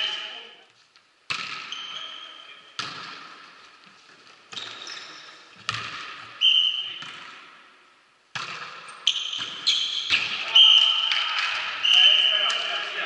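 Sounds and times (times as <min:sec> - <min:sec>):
volleyball being struck: 0:01.3 - 0:01.8, 0:02.8 - 0:03.4, 0:05.7 - 0:06.3, 0:08.3 - 0:10.4
shoes squeaking on court floor: 0:01.5 - 0:02.8, 0:03.7 - 0:07.1, 0:08.8 - 0:12.8.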